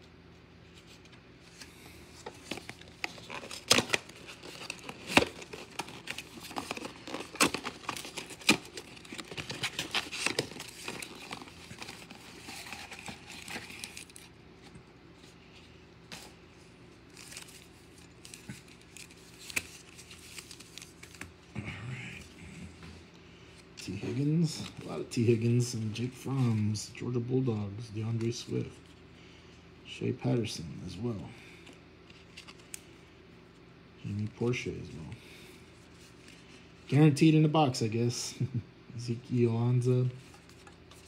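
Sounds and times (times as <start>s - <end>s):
plastic wrapper crinkling and tearing: 2.2s - 14.3s, 17.1s - 21.3s.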